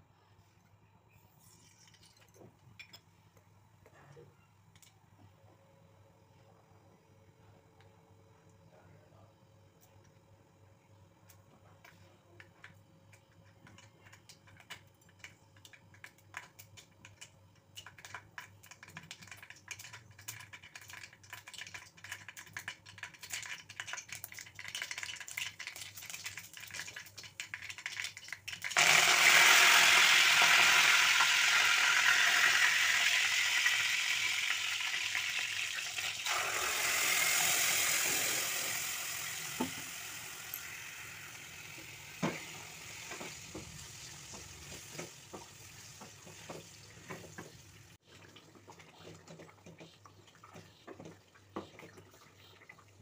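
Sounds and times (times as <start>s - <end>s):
seeds popping in hot oil: 12.6s - 47.5s
loud frying sizzle: 15.7s - 48.0s.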